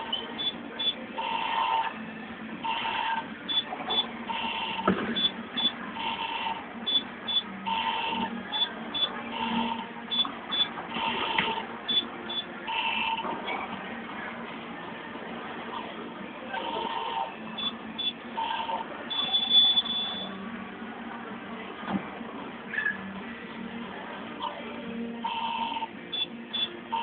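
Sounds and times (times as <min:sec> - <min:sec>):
slot machine electronic beeps: 0:00.0 - 0:01.9, 0:02.6 - 0:13.2, 0:16.6 - 0:20.3, 0:25.3 - 0:27.0.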